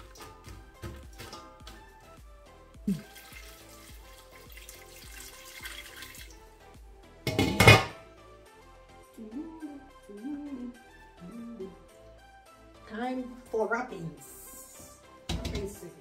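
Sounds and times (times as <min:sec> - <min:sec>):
water pouring into metal pot: 0:00.0 - 0:01.8, 0:02.8 - 0:06.5
background music: 0:00.0 - 0:16.0
glass lid clattering on pot: 0:07.3 - 0:08.0
knock against pot: 0:07.3 - 0:08.0, 0:15.3 - 0:15.8.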